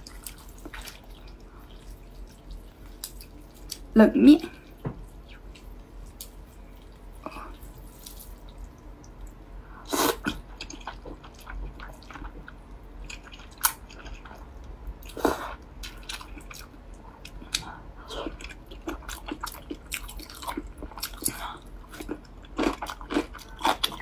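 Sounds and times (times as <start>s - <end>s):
wet chewing with mouth clicks: 0.0s - 3.9s.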